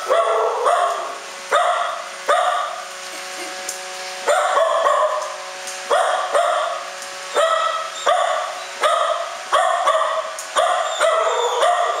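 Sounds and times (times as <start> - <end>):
dog barking: 0.0 - 2.8, 4.3 - 12.0.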